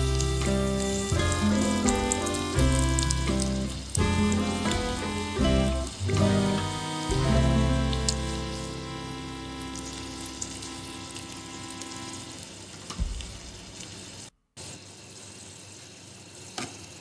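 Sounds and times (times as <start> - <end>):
sustained music notes: 0.0 - 12.6
oil sizzling in a wok: 0.0 - 17.0
short thump: 12.9 - 13.4.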